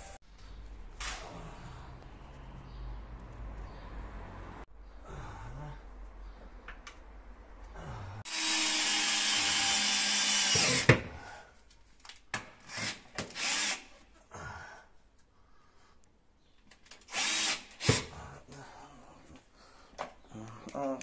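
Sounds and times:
cordless drill whirring: 0:08.3 - 0:10.9, 0:12.7 - 0:13.9, 0:17.1 - 0:18.0.

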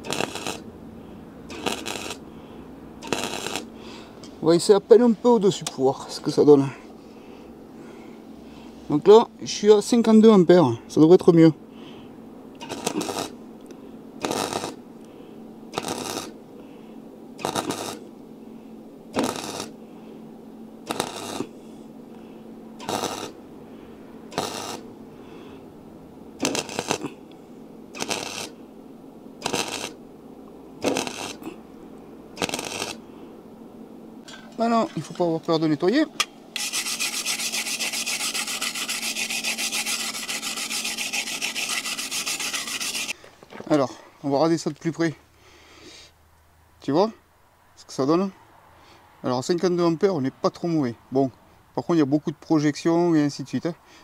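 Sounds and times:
welder arc crackle and sputter: 0:00.0 - 0:00.6, 0:01.5 - 0:02.2, 0:03.0 - 0:03.7, 0:12.6 - 0:13.4, 0:14.2 - 0:14.8, 0:15.7 - 0:16.4, 0:17.4 - 0:18.1, 0:19.2 - 0:19.8, 0:20.9 - 0:21.5, 0:22.8 - 0:23.4, 0:24.3 - 0:24.8, 0:26.4 - 0:27.1, 0:27.9 - 0:28.6, 0:29.4 - 0:30.0, 0:30.8 - 0:31.5, 0:32.4 - 0:33.0
wire brush scrubbing metal: 0:36.6 - 0:43.2.

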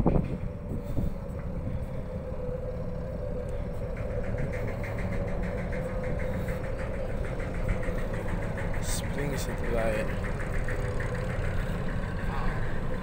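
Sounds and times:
ship machinery rumble: 0:00.0 - 0:13.0
fast even ticking: 0:03.7 - 0:12.9.

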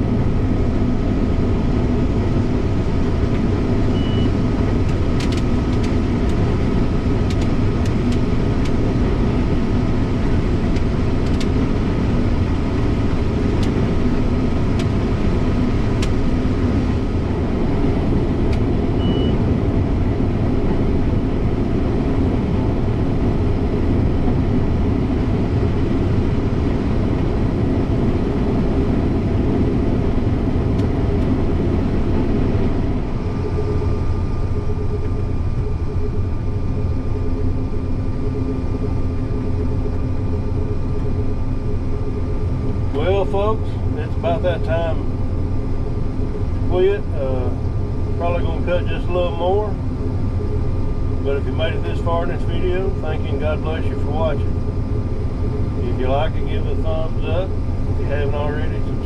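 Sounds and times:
combine harvester drone: 0:00.0 - 0:59.0
faint steady whine: 0:00.0 - 0:59.0
short high beeps: 0:03.9 - 0:04.3, 0:19.0 - 0:19.4.

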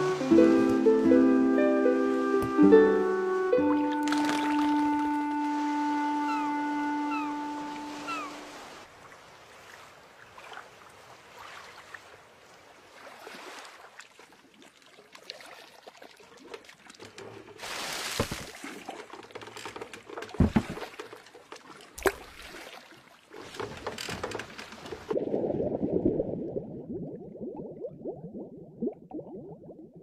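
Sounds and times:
water trickling and dripping: 0:03.7 - 0:06.6.

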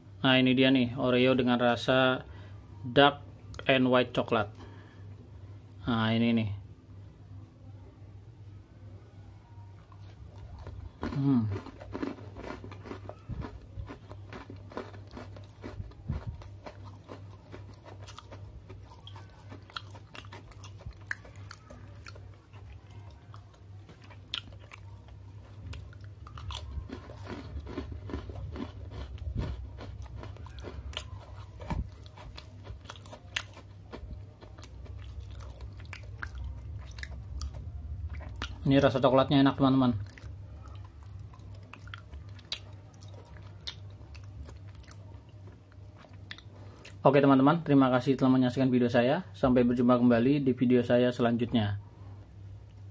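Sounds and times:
steady low hum: 0:00.0 - 0:52.9
person chewing crunchy cookie: 0:09.8 - 0:47.2.

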